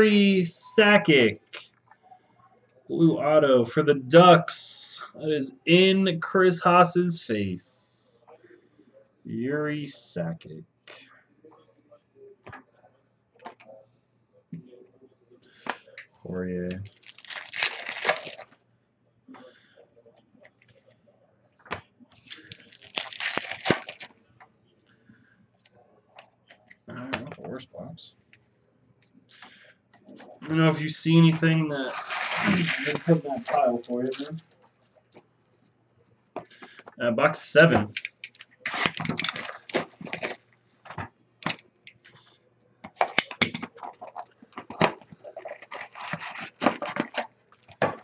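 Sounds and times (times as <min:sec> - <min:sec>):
cards being handled: 0:16.7 - 0:18.6, 0:21.7 - 0:24.1, 0:31.2 - 0:34.4, 0:37.7 - 0:41.6, 0:42.8 - 0:48.0
foil wrapper tearing and crinkling: 0:16.7 - 0:18.6, 0:22.2 - 0:24.1, 0:31.8 - 0:34.3, 0:37.9 - 0:40.4, 0:45.3 - 0:47.3.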